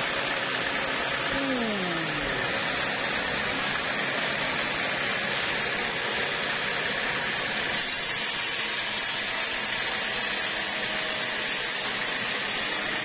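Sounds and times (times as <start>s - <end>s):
band saw cutting log: 7.7s - 13.0s.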